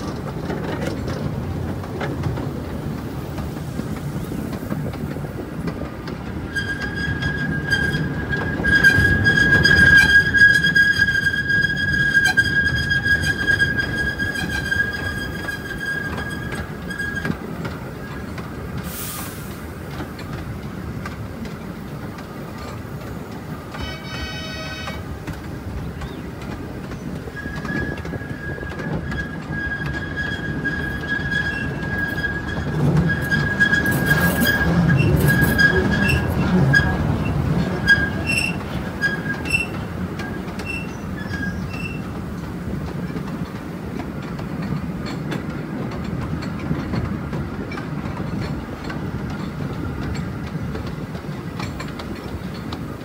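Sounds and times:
low rumble of train cars: 0:00.0 - 0:53.0
train wheels squealing: 0:06.4 - 0:19.8, 0:23.7 - 0:25.1, 0:26.9 - 0:42.2.

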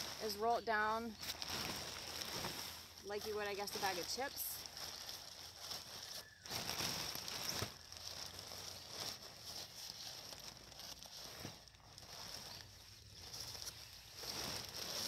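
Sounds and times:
nylon fabric rustling: 0:00.0 - 0:15.0.

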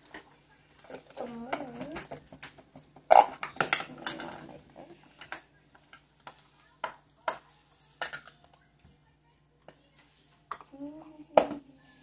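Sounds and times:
plastic toys clicking and tapping: 0:00.0 - 0:04.6, 0:05.2 - 0:07.4, 0:08.0 - 0:08.6.

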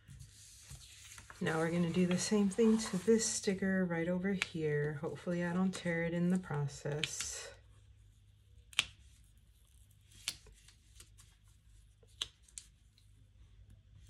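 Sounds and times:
faint paper rustling: 0:00.0 - 0:05.4.

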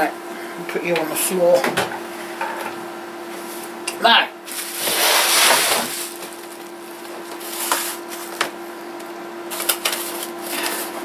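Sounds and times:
steady low hum: 0:00.0 - 0:11.0
bubble wrap crinkling: 0:04.4 - 0:08.5.

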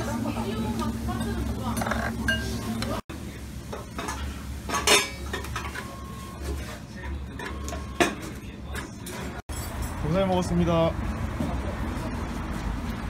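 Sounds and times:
dishes and cutlery clinking: 0:01.1 - 0:03.0, 0:03.7 - 0:10.0
dishes clattering: 0:01.1 - 0:03.0, 0:03.7 - 0:05.9.

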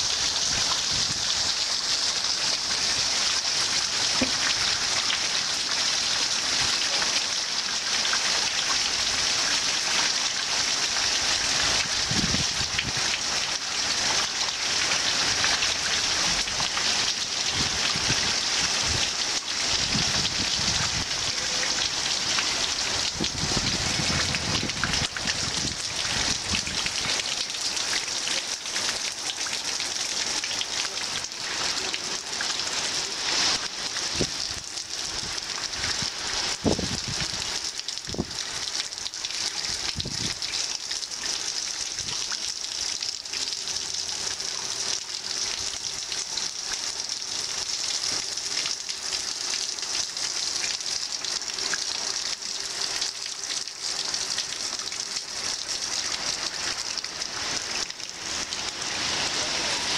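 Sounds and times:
heavy rain pattering: 0:00.0 - 0:59.9.

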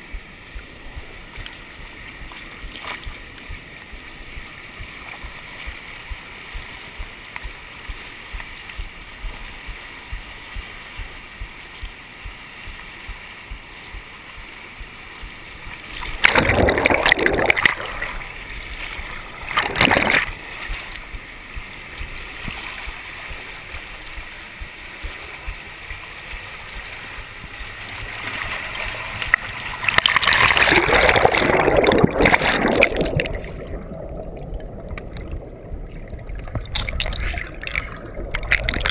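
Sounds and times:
loud water splashing: 0:14.8 - 0:34.3, 0:36.0 - 0:38.9.

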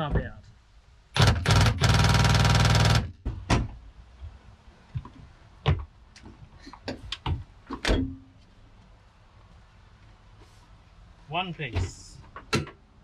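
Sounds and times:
plastic knocks and clunks: 0:05.0 - 0:05.9, 0:06.8 - 0:08.2.

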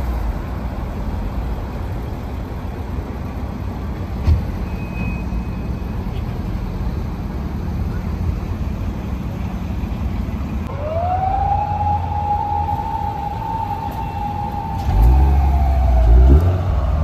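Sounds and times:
car engine rumble: 0:00.0 - 0:17.0
siren wail: 0:10.7 - 0:17.0.

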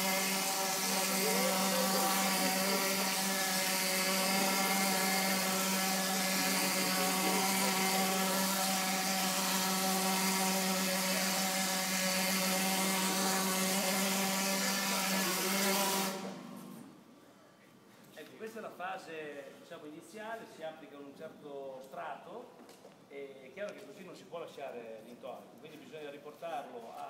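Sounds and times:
plaster spraying hiss: 0:00.0 - 0:16.9
motor hum: 0:00.0 - 0:17.0.

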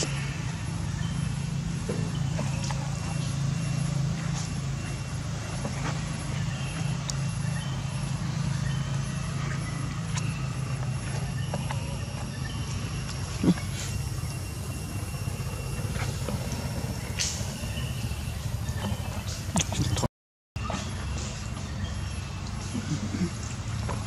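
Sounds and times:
faint chirps and clicks: 0:01.9 - 0:03.5, 0:08.4 - 0:20.1.

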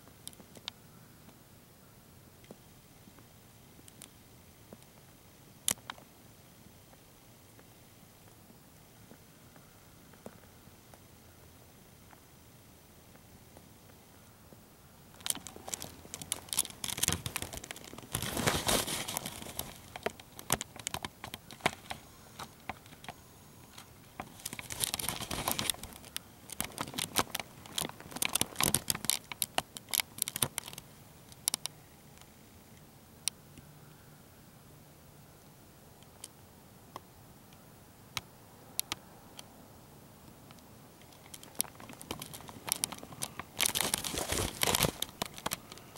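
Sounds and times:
rustling and crinkling: 0:15.1 - 0:31.7, 0:40.5 - 0:45.9.

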